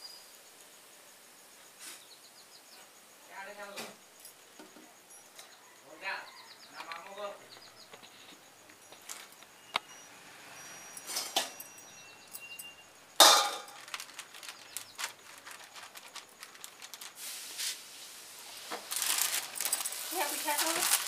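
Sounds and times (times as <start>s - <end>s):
metal utensils clinking: 10.8s - 14.3s, 19.0s - 21.0s
plastic sheet crinkling: 13.2s - 21.0s.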